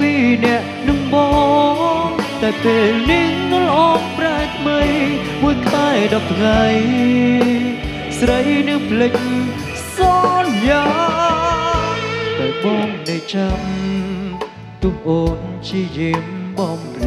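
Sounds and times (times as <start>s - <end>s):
wavering sliding lead melody: 0.0s - 15.2s
drum kit beat: 0.0s - 17.0s
live pop band playing: 0.0s - 17.0s.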